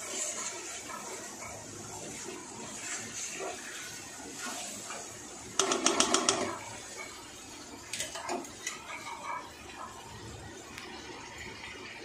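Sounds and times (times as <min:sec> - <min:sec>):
metal spatula tapping on pan: 0:05.6 - 0:06.6.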